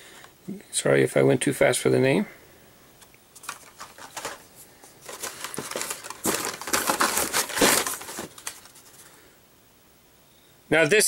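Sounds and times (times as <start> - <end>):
plastic blister packs crinkling: 3.3 - 9.2.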